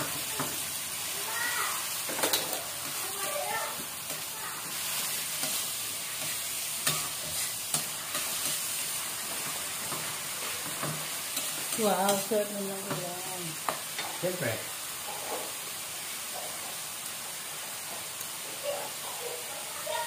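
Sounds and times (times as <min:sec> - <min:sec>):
fish sizzling in oil: 0:00.0 - 0:20.0
metal ladle scraping wok: 0:04.2 - 0:08.8.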